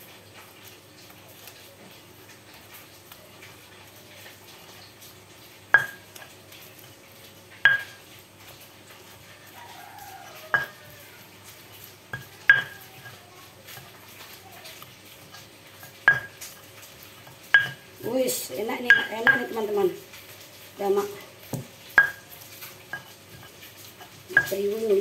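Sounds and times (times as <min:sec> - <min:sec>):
pestle crushing food: 0:05.7 - 0:09.2, 0:10.4 - 0:18.1, 0:21.0 - 0:25.0
stone knocking on stone: 0:07.7 - 0:08.0.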